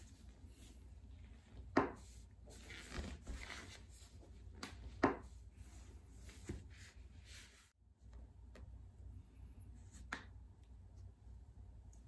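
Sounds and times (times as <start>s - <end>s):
hands rubbing skin and clothing: 0.0s - 7.8s.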